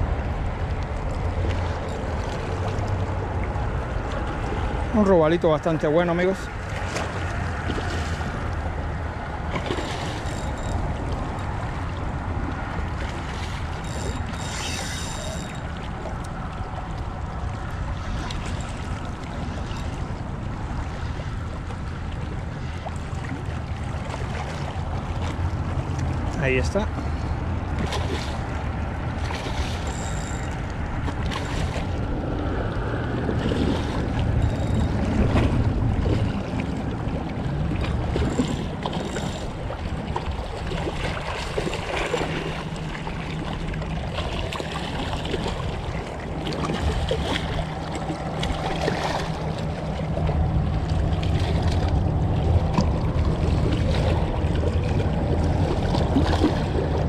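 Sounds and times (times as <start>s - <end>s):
wind buffeting microphone: 15.6s - 57.0s.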